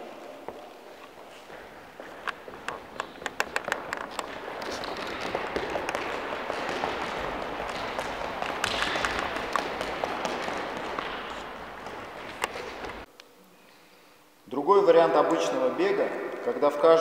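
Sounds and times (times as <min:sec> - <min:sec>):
running footsteps on wooden floor: 0:00.0 - 0:13.1
steady noise: 0:00.0 - 0:17.0.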